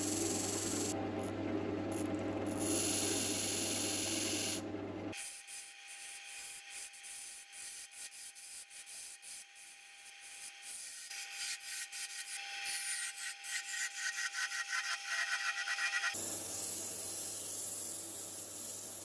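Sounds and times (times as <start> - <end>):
wood lathe humming: 0.0 - 4.8.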